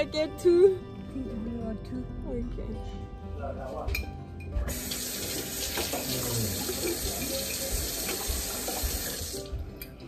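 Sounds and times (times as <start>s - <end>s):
faucet running into sink: 4.7s - 9.6s.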